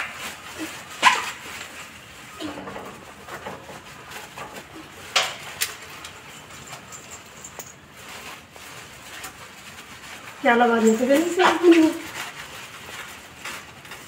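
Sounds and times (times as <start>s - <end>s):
metal chain clicking on tiles: 5.6s - 7.8s.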